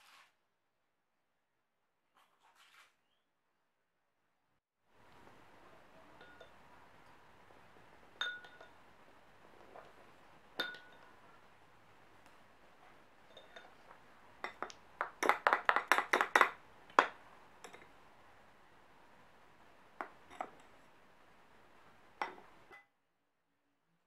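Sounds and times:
metal spoon clinking on glass bowl: 0:06.1 - 0:06.6, 0:08.2 - 0:08.8, 0:10.6 - 0:11.2, 0:13.3 - 0:13.8, 0:14.4 - 0:17.9.

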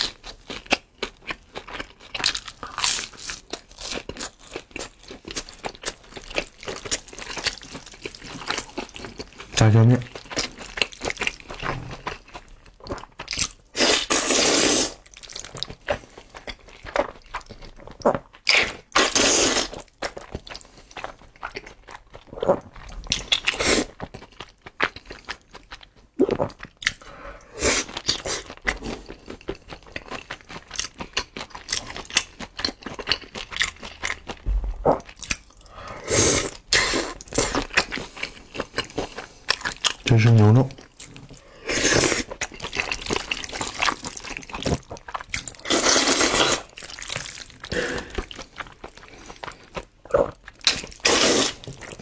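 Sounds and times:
wet chewing: 0:15.0 - 0:52.0
noodles slurped: 0:41.2 - 0:52.0.

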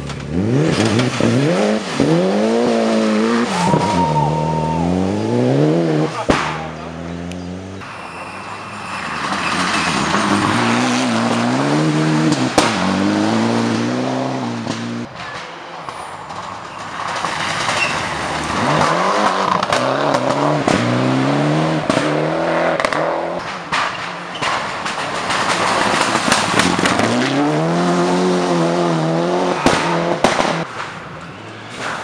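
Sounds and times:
tyres on flung gravel: 0:00.0 - 0:07.2, 0:07.8 - 0:32.0
rally car engine passing: 0:00.0 - 0:15.1, 0:25.1 - 0:30.7
sharp bang: 0:06.2 - 0:06.8.

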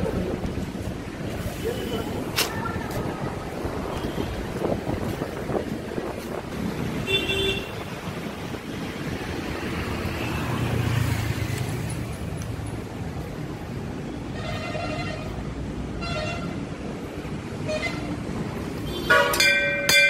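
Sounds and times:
wind on microphone: 0:00.0 - 0:09.8
rumble of road traffic: 0:00.0 - 0:20.0.

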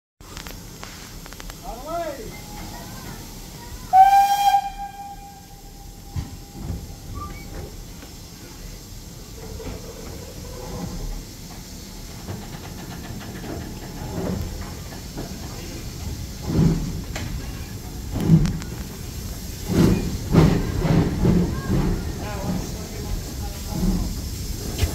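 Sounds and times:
steam locomotive exhaust beats: 0:02.4 - 0:24.9
steam whistle blast: 0:03.9 - 0:06.4.

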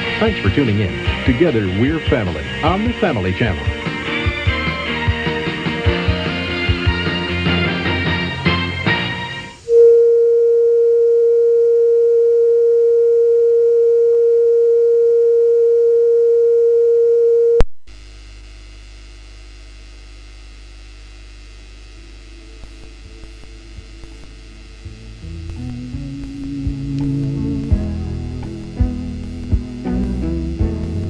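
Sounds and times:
low electrical hum: 0:09.0 - 0:31.0
steady pure test tone: 0:09.6 - 0:17.7, 0:21.6 - 0:31.0.

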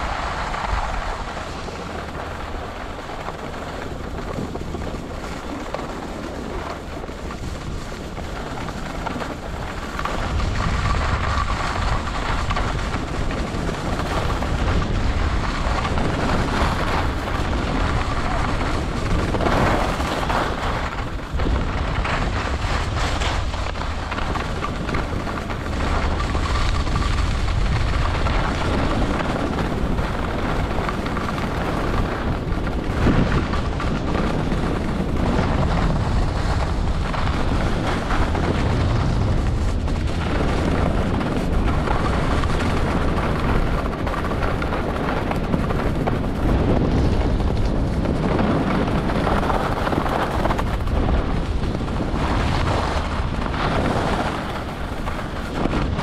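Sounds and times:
skis scraping packed snow: 0:00.0 - 0:56.0
wind buffeting microphone: 0:00.0 - 0:56.0.

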